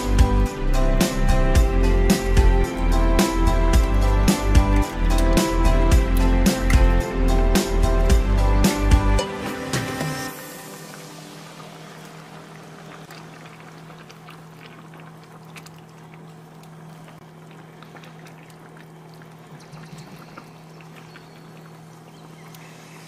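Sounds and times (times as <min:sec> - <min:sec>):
low hum: 0:00.0 - 0:23.0
sauce bubbling in a pan: 0:10.6 - 0:23.0.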